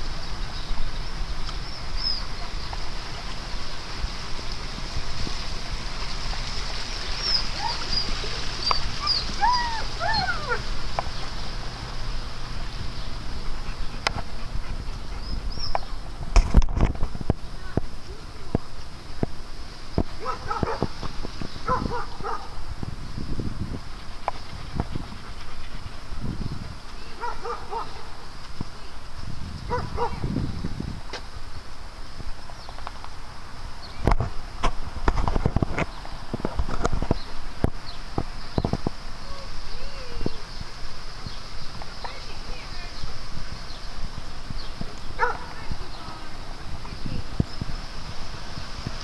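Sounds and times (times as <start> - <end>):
low uneven noise: 0.0 - 49.0
steady hiss: 0.0 - 49.0
dog whining: 7.2 - 10.6.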